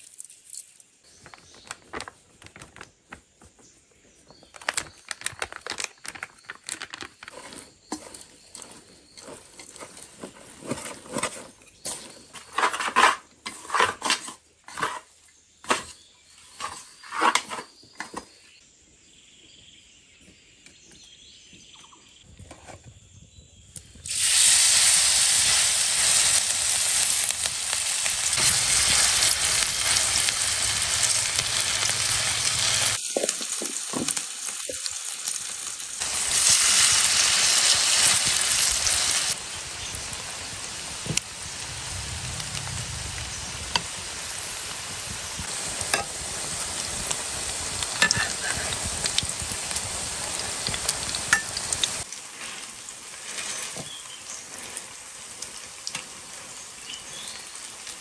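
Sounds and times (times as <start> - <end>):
fritters sizzling in hot oil: 24.0 - 58.0.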